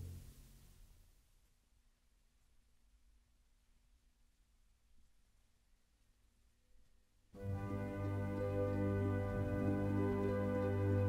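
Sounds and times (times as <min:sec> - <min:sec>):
record surface hiss: 0:00.0 - 0:11.0.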